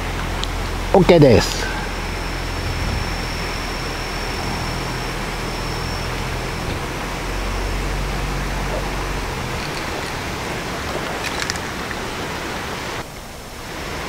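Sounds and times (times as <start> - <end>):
faint high whine: 0.0 - 14.0
low rumble: 1.5 - 9.6.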